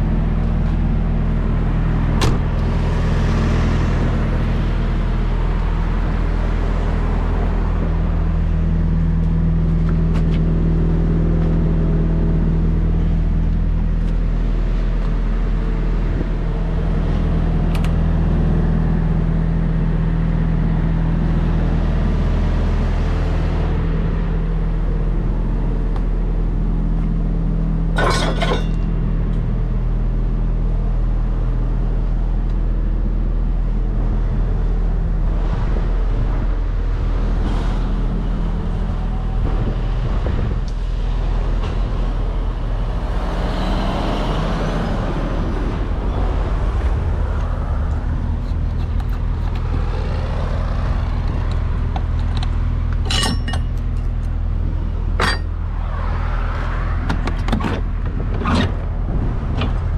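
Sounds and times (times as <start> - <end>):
diesel engine idling: 0.0 - 35.3
metallic clinking: 28.0 - 28.9, 53.0 - 54.1.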